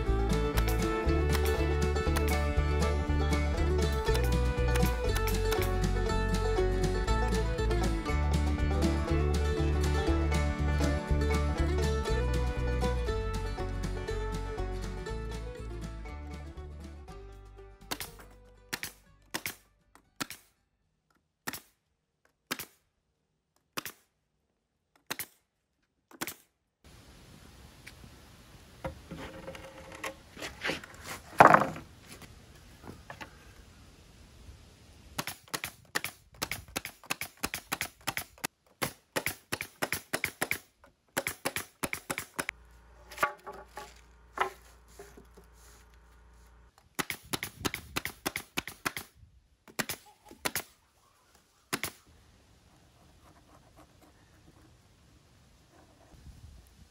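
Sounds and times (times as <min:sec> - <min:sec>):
nail gun firing: 0:17.9 - 0:19.6, 0:20.2 - 0:20.5, 0:21.4 - 0:21.8, 0:22.5 - 0:22.8, 0:23.7 - 0:24.0, 0:25.0 - 0:25.4, 0:26.1 - 0:26.5, 0:35.2 - 0:42.5, 0:47.0 - 0:49.1, 0:49.7 - 0:50.7.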